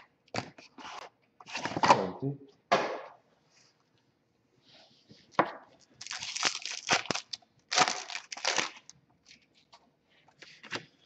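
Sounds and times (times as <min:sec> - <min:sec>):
card pack wrapper crinkling: 0:06.0 - 0:09.4.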